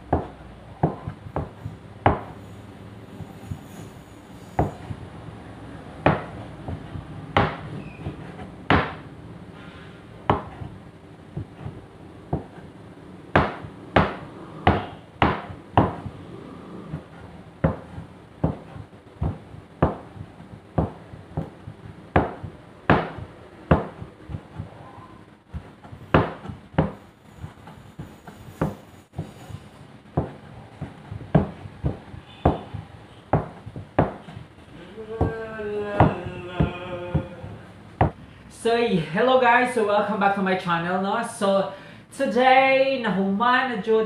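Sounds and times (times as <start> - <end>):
meat cleaver chopping on board: 6.1 - 9.0, 13.4 - 16.3, 16.9 - 24.8, 25.6 - 27.0, 30.2 - 34.5.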